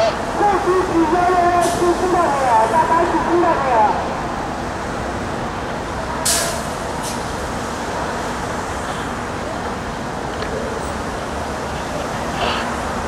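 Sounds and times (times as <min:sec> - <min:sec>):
road traffic noise: 0:00.0 - 0:13.0
short sharp hiss: 0:06.2 - 0:07.2.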